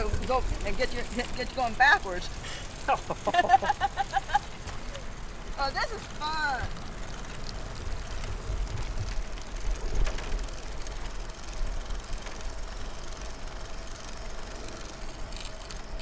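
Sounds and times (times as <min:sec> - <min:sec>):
faint steady whine: 0:00.0 - 0:16.0
tyre and drivetrain noise: 0:00.0 - 0:16.0
wind rumble on microphone: 0:07.8 - 0:11.8.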